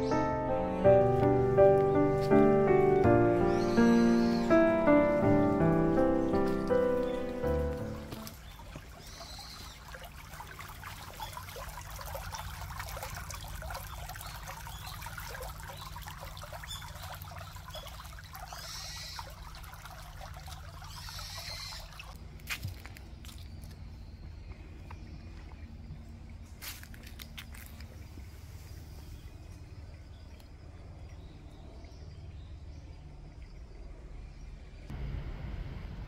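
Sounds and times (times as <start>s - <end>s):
stream trickling over stones: 3.0s - 24.2s, 25.3s - 33.8s.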